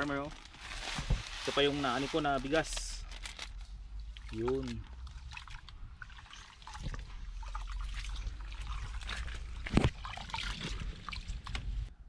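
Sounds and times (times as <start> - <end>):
water splashing and trickling: 3.9 - 11.9.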